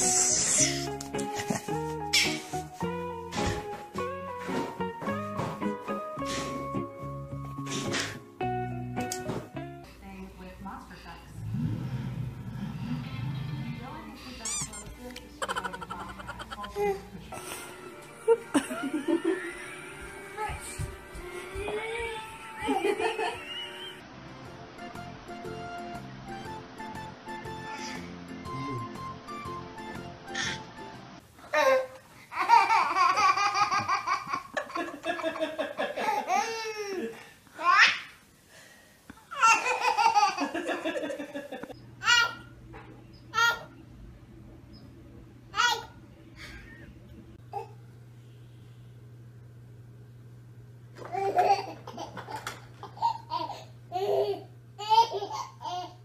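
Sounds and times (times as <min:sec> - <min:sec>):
baby laughing: 0:14.5 - 0:17.1, 0:31.6 - 0:35.3, 0:39.3 - 0:40.9, 0:51.1 - 0:56.0.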